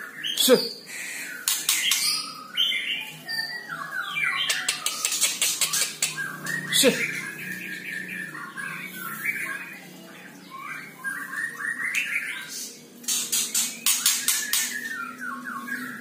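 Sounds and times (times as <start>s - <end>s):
songbird singing: 0.0s - 16.0s
loud rising bird note: 3.8s - 9.8s.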